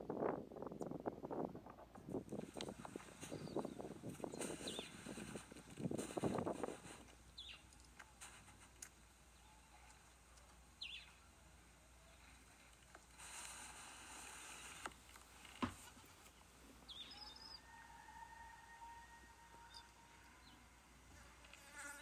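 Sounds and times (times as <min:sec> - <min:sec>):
high bird chirps: 0:03.2 - 0:05.0, 0:07.4 - 0:07.7, 0:10.8 - 0:11.2, 0:16.9 - 0:18.4, 0:19.6 - 0:20.7
insect buzz: 0:21.1 - 0:22.0.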